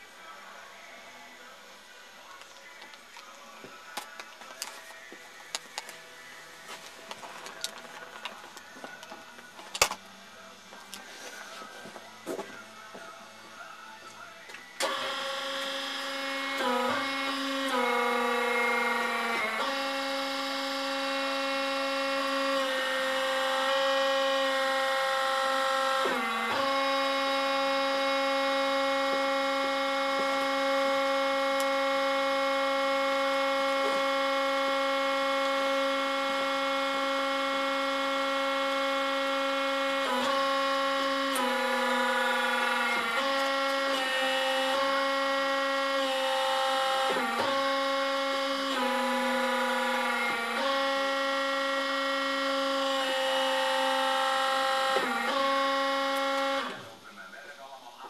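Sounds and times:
power harrow mechanical whine: 14.5 - 57.0.

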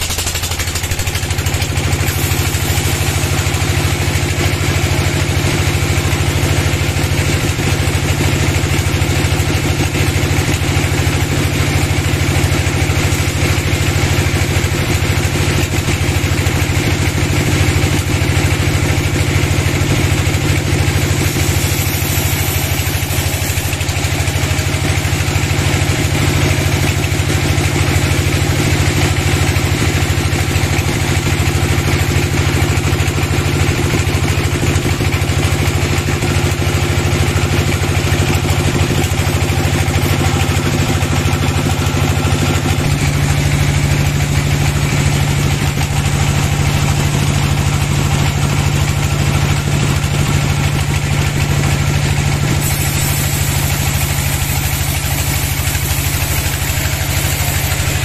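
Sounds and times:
saw blade cutting log hiss: 0.0 - 3.6, 21.0 - 24.3, 52.5 - 58.0
band saw machine hum: 1.2 - 5.5, 52.4 - 58.0.

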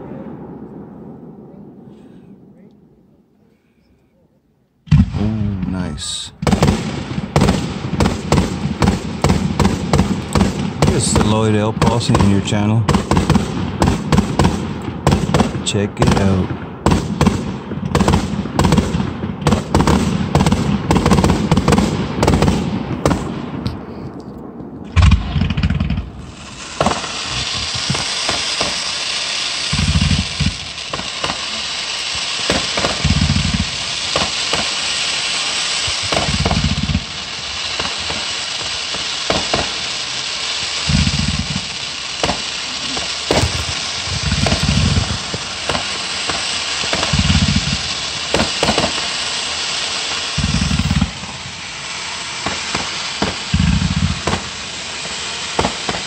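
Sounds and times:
fireworks crackling and popping: 4.7 - 56.0
firework fountain hissing: 4.9 - 23.7, 24.4 - 56.0
dull low thumps: 24.5 - 28.3, 29.7 - 30.8, 43.3 - 45.8.

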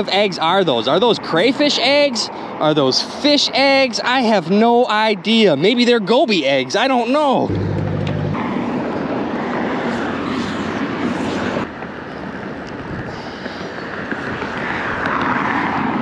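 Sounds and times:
outdoor rushing noise: 7.4 - 16.0
low rumble: 7.5 - 9.3.

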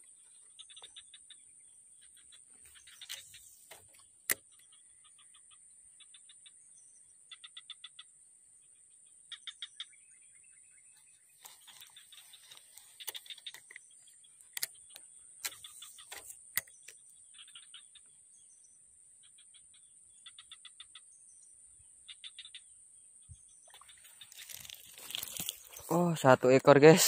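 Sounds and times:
rapid chirping trills: 0.0 - 8.1, 11.0 - 18.1
sharp clicks: 11.4 - 17.0.

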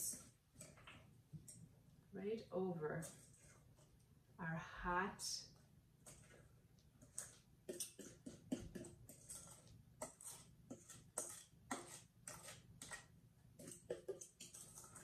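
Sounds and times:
utensil scraping metal bowl: 3.0 - 3.9, 6.0 - 15.0.

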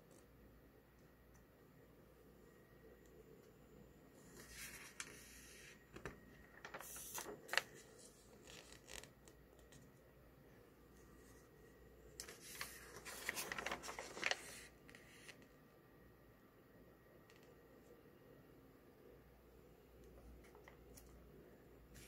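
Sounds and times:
magazine pages rustling: 6.0 - 9.8, 12.2 - 15.4.

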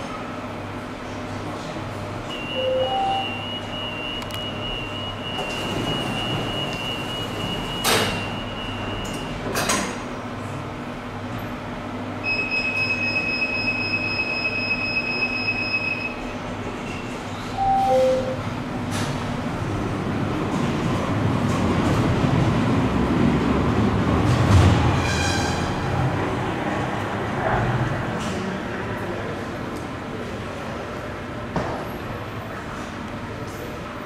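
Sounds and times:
steady high warning tone: 2.2 - 9.4, 12.2 - 18.7
rapid high warning beep: 2.3 - 9.3, 12.3 - 16.2, 17.6 - 18.4
sliding doors shutting: 4.2 - 10.0.

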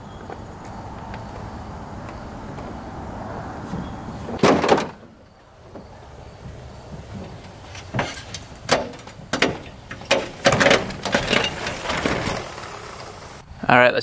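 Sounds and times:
knocks and clunks: 3.7 - 13.2.

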